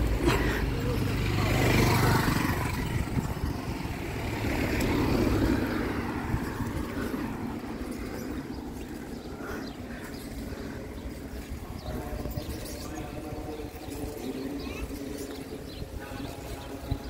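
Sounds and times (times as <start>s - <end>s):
car driving by: 0.0s - 11.8s.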